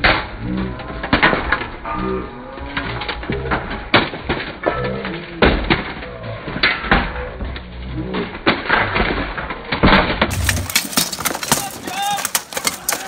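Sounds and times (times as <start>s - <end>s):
weapons clanking on armour: 9.9s - 13.0s
voices shouting: 10.4s - 13.0s.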